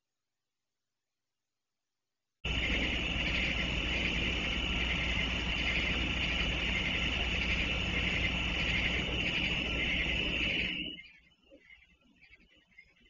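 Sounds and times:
background hum and hiss: 2.5s - 11.8s.

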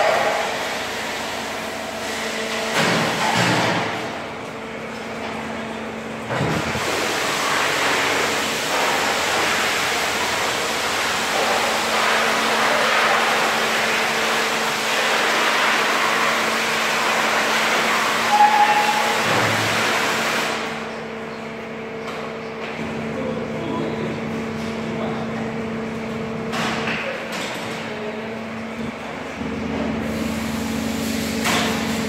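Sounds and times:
brief squeak: 18.3s - 19.2s.

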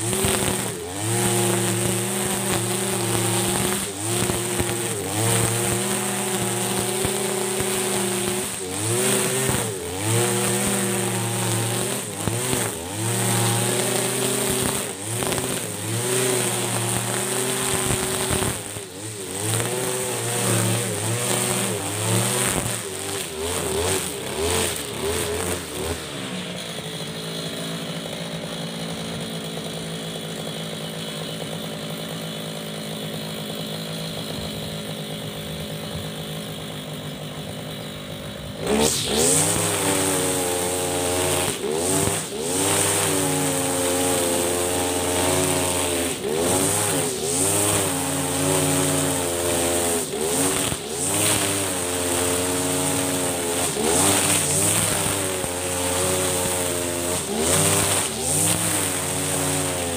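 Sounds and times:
brush cutter engine cutting grass: 0.0s - 59.9s.

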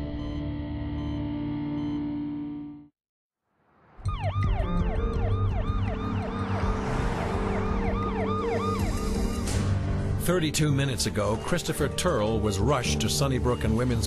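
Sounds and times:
ambulance siren yelping: 4.0s - 9.7s.

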